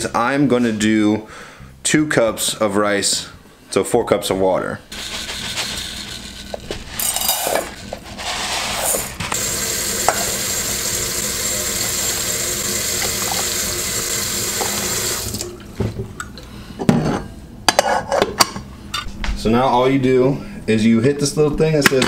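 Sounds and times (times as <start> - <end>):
dry rice rattling into pot: 4.9 - 8.1
kitchen tap running: 8.9 - 16.4.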